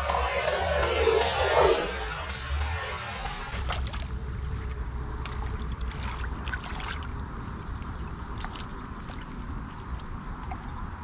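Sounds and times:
steady low rumble: 0.0 - 11.0
small water splashes: 3.6 - 11.0.

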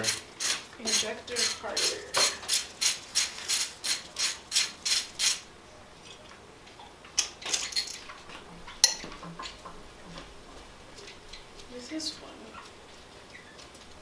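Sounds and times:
light metal clinks and taps: 8.8 - 9.5.

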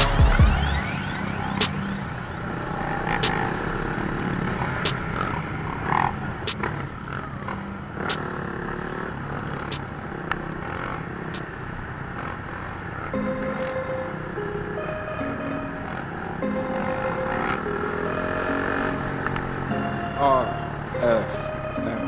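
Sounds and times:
dirt bike engines running: 0.0 - 22.0.

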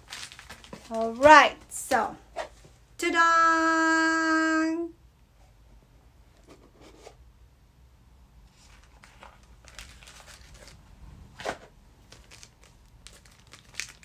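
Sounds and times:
plastic bag rustling and crinkling: 0.0 - 1.2, 8.5 - 14.0.

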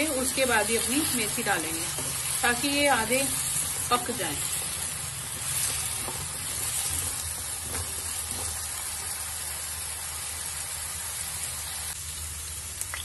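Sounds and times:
potatoes sizzling in oil: 0.0 - 13.0
wooden spatula scraping: 3.2 - 8.7.

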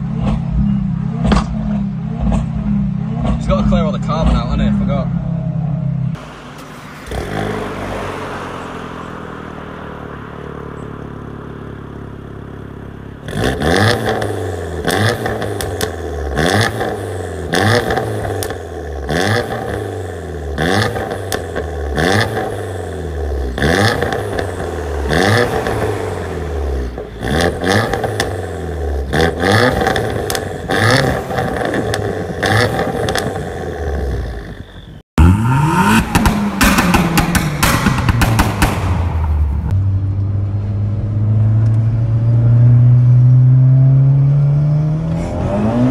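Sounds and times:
car engine idling: 0.0 - 40.8
car engine revving: 0.0 - 45.9
exhaust pops and bangs: 1.2 - 2.6, 29.1 - 33.6, 35.8 - 39.8.

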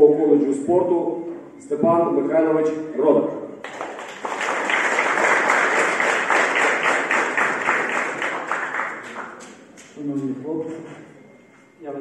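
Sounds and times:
crowd applauding: 3.6 - 9.6.

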